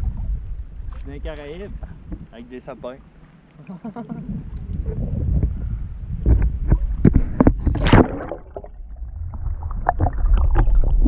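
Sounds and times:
water splashing against camera: 0:00.0 - 0:05.6, 0:06.2 - 0:11.0
muffled underwater rumble: 0:00.0 - 0:11.0
loud splash: 0:07.7 - 0:11.0.

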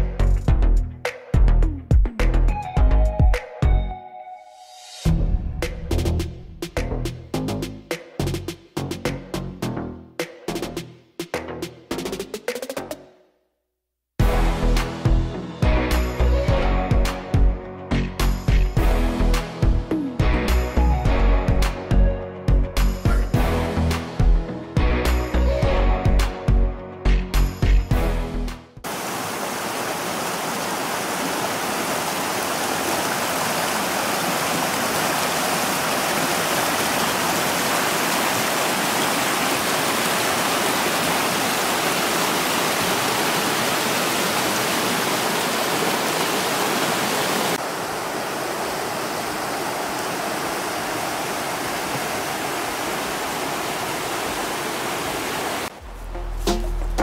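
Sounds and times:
water rushing over rocks: 0:28.9 - 0:55.9.

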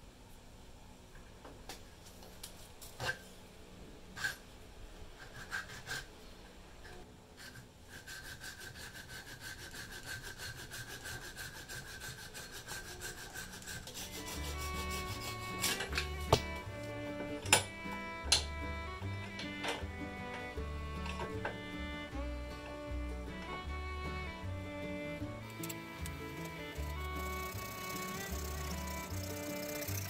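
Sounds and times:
hand saw cutting wood: 0:05.2 - 0:06.1, 0:07.4 - 0:18.5, 0:25.4 - 0:30.0
music: 0:14.0 - 0:30.0.

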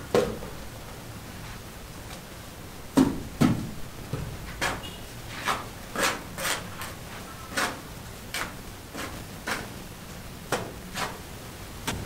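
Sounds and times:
trowel scraping mortar: 0:04.6 - 0:09.8, 0:10.9 - 0:11.2.

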